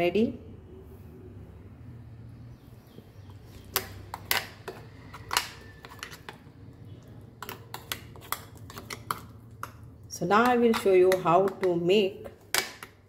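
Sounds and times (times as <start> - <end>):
spoon scraping a steel jar: 3.6 - 6.5, 7.4 - 11.9.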